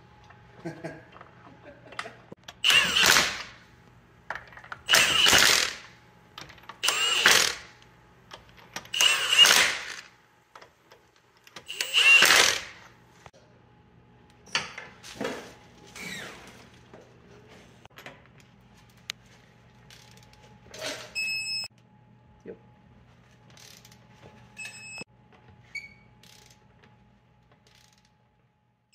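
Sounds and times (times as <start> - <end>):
impact wrench bursts: 2.6 - 3.6, 4.8 - 6.0, 6.8 - 7.8, 8.9 - 10.1, 11.6 - 12.9.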